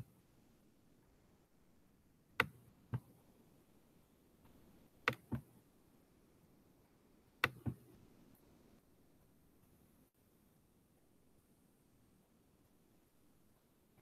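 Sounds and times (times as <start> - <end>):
computer mouse clicks: 2.4 - 3.1, 5.0 - 5.5, 7.4 - 7.8.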